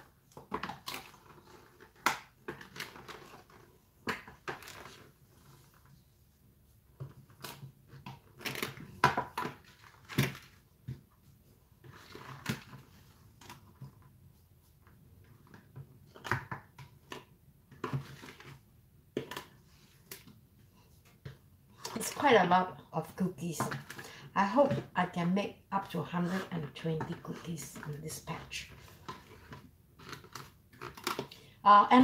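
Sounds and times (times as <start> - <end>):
dough scraper scraping plastic bowl: 25.8 - 31.1.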